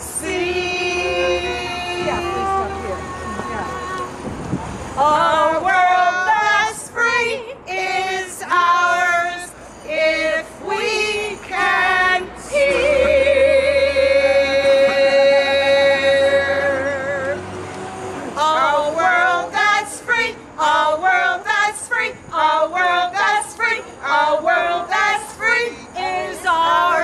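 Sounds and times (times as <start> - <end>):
women singing in unison: 0.0 - 4.2, 5.0 - 17.6, 18.4 - 27.0.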